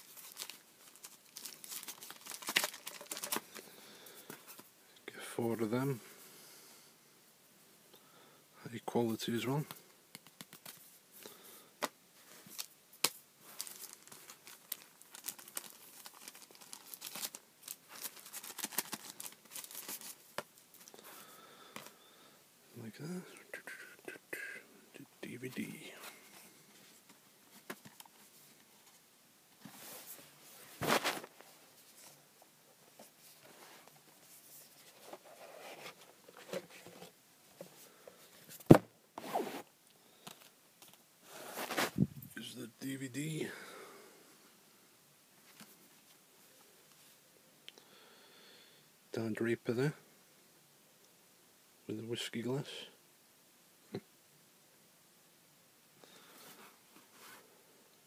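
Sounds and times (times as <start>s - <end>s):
plastic packaging crinkling: 0.0s - 3.6s, 12.5s - 21.0s
packaging rustling and scraping: 0.0s - 4.7s, 13.4s - 21.0s, 29.6s - 32.2s, 33.0s - 37.8s, 38.4s - 39.7s, 40.3s - 42.1s.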